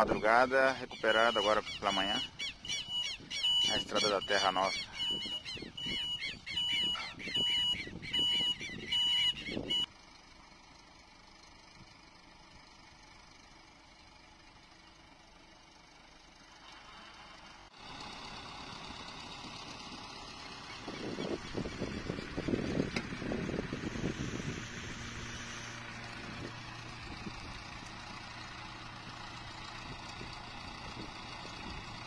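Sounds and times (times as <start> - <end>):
outdoor background noise: 0.0 - 32.0
geese honking: 0.9 - 9.7.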